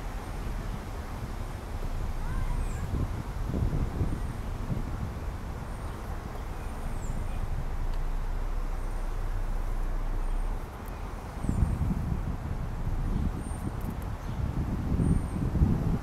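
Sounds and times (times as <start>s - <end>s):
road noise: 0.0s - 16.0s
wind rumble on microphone: 0.0s - 16.0s.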